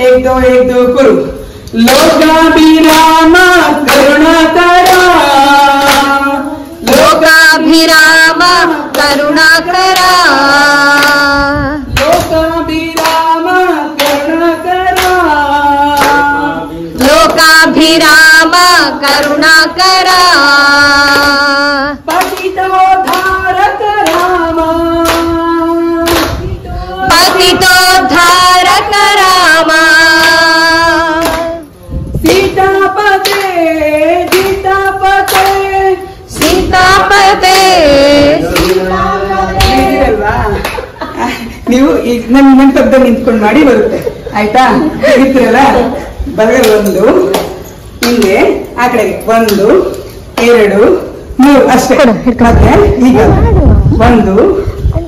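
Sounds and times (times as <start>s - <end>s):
group singing devotional song: 0.0s - 51.3s
hand claps: 1.7s - 26.5s, 30.1s - 37.8s, 38.4s - 38.8s, 39.5s - 41.3s, 46.6s - 48.6s, 49.4s - 50.6s.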